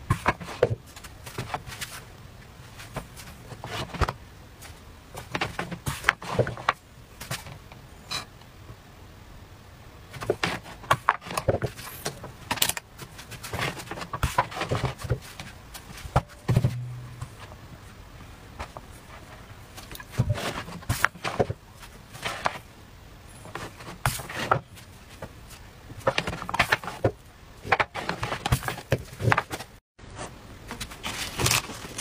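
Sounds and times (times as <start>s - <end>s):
low hum: 16.3s - 18.6s.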